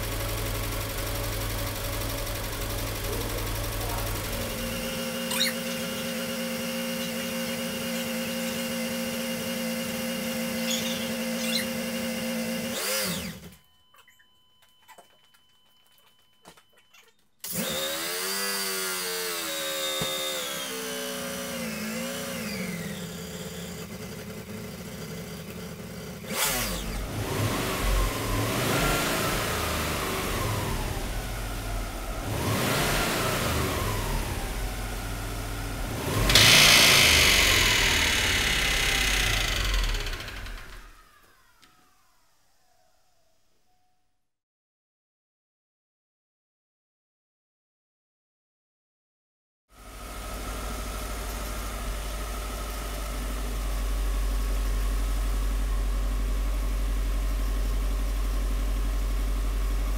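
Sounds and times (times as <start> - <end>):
car engine running: 0.0 - 13.3, 22.2 - 41.2, 49.8 - 59.9.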